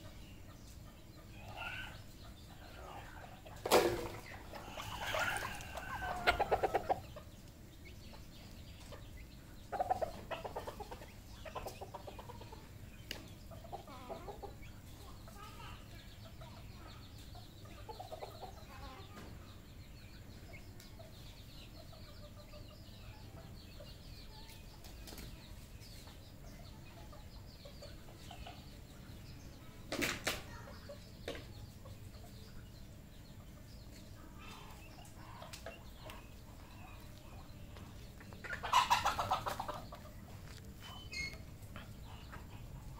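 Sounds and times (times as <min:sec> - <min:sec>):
junglefowl clucking: 0:01.0 - 0:07.3, 0:09.7 - 0:12.8, 0:34.4 - 0:40.2.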